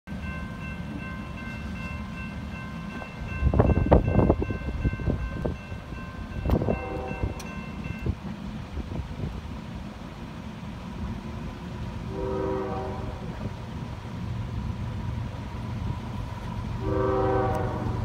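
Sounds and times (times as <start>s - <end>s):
crossing bell ringing: 0.1s - 8.2s
diesel locomotive rumbling: 0.1s - 18.0s.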